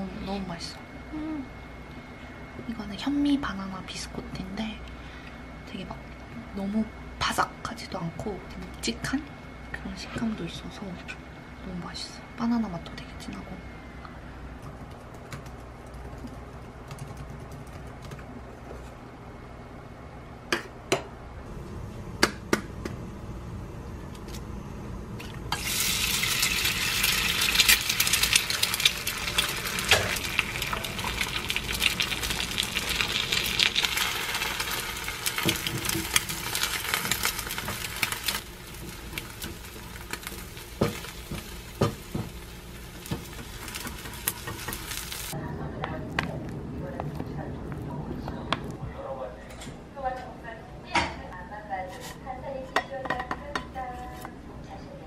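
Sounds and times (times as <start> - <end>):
egg sizzling in oil: 25.2 - 45.4.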